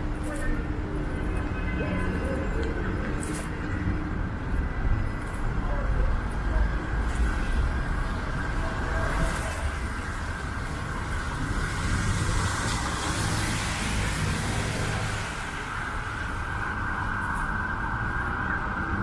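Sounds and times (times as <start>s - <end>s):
car engines rumbling: 0.0s - 19.0s.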